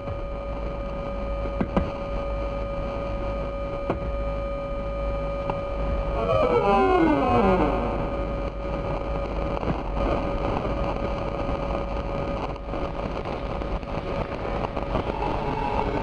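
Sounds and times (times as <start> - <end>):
rumbling hissing electronic noise: 0.0 - 16.0
held electronic tone: 5.2 - 9.2.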